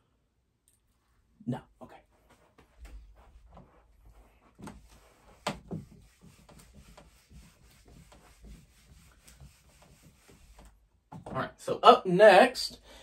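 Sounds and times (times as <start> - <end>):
faint rubbing at a desk: 2.0 - 10.8.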